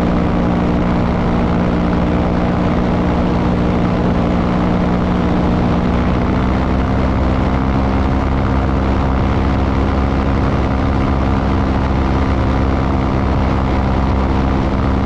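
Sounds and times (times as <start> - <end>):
light aircraft engine humming: 0.0 - 15.0.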